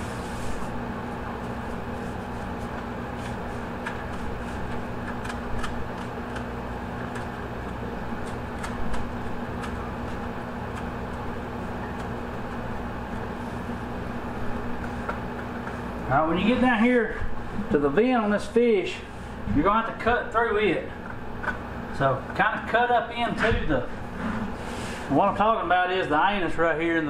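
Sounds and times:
ventilation unit hum: 0.0s - 27.0s.

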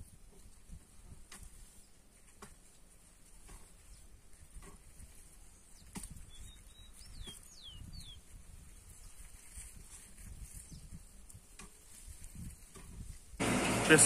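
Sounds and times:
hoe blade knocking soil: 1.2s - 1.6s, 2.3s - 2.8s, 3.4s - 3.8s
bird chirping: 5.5s - 8.3s.

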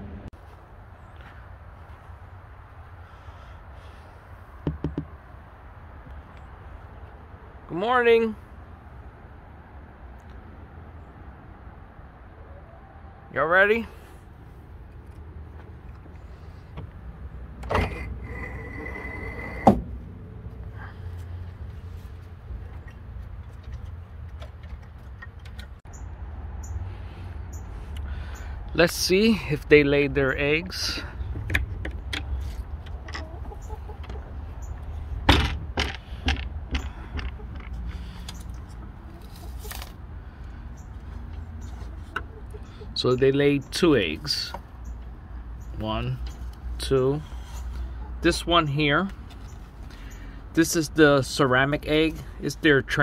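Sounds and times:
sharp clicks and knocks: 4.6s - 5.1s, 35.3s - 38.5s
coop slide door opening: 17.6s - 19.9s
hens clucking: 32.7s - 35.1s, 40.9s - 43.0s, 46.3s - 48.6s.

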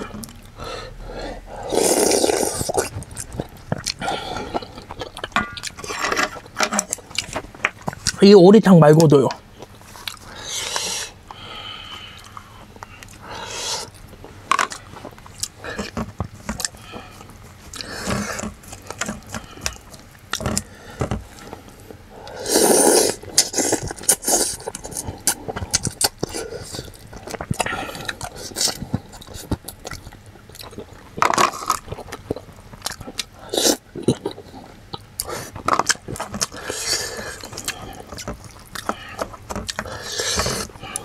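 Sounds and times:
slurping: 1.6s - 7.4s, 22.2s - 29.5s, 32.9s - 41.0s
chewing: 1.6s - 8.2s, 9.6s - 41.0s.

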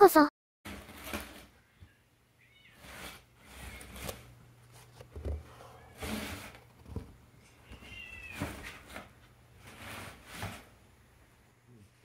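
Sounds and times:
cat chirp: 7.5s - 8.8s.

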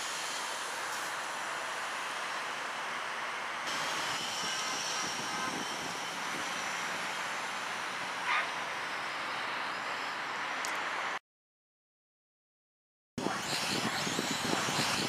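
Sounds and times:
drone motors whining: 3.7s - 10.4s, 13.2s - 15.0s.

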